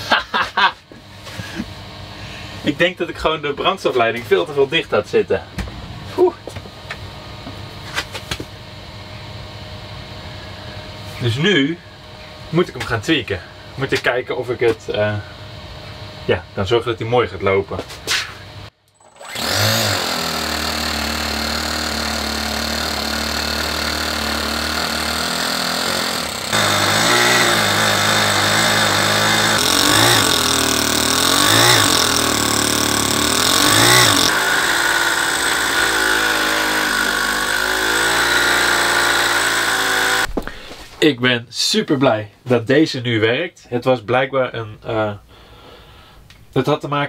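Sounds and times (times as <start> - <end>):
model engine revving: 19.0 - 40.3.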